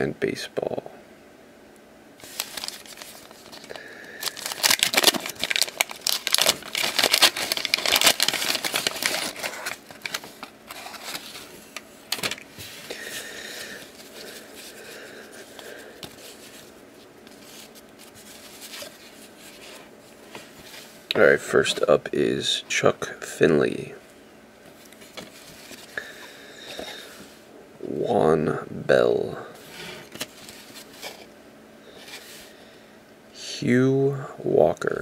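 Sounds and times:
paper wrapper tearing and crinkling: 2.2 - 14.8
cards rustling: 2.2 - 20.9, 24.8 - 27.2, 29.6 - 31.3.

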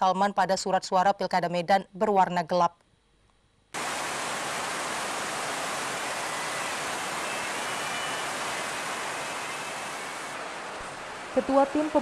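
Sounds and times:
steady rushing hiss: 3.8 - 12.0.

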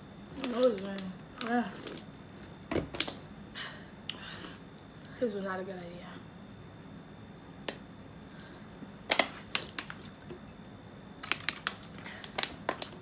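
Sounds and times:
plastic bottles crinkling: 11.2 - 13.0.

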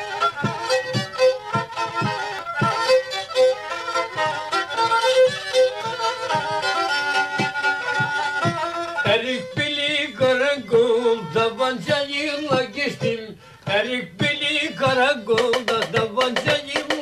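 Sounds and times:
bowed fiddle melody: 0.0 - 17.0
steady drum beat: 0.0 - 17.0
man singing: 9.0 - 17.0.

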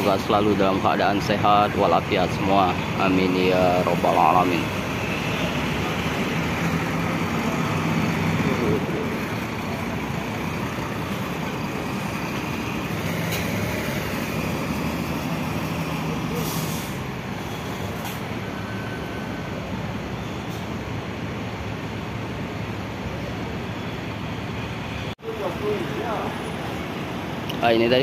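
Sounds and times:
bus diesel engine running: 0.0 - 23.9
air brake hiss: 16.3 - 18.2, 20.5 - 20.8.

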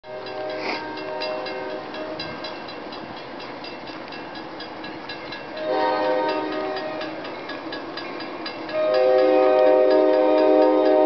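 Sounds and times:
train horn chord: 0.0 - 2.3, 5.6 - 7.2, 8.7 - 11.0
crossing bell dinging: 0.0 - 11.0.

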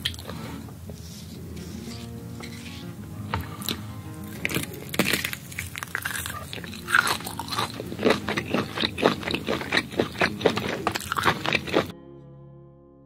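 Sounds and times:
biting and chewing meat: 3.3 - 11.9.

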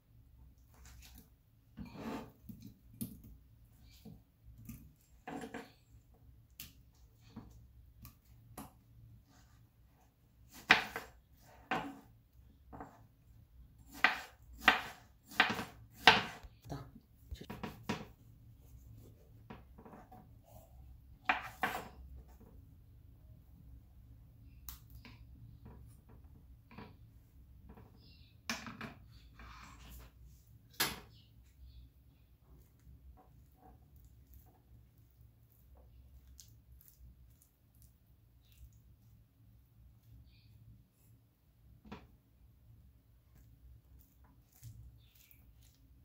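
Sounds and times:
knife slicing watermelon: 13.8 - 16.5.

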